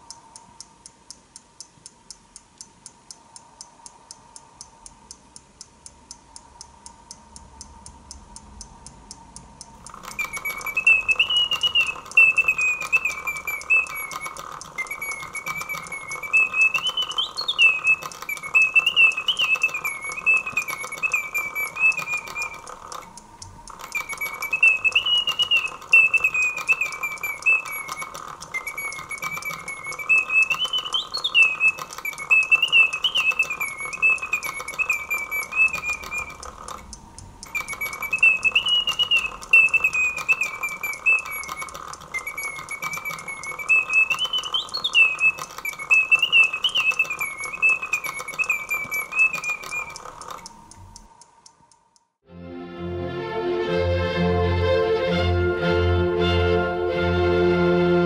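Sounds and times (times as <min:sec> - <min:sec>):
clockwork ticking: 0:00.0 - 0:52.2
mechanical whistle playing folk tune: 0:09.9 - 0:23.1, 0:23.7 - 0:36.7, 0:37.4 - 0:50.5.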